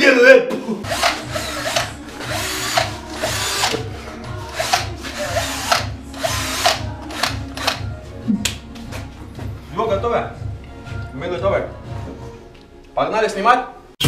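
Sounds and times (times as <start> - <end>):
background music with beat: 0.5 - 13.0
cordless drill whirring: 0.8 - 7.8.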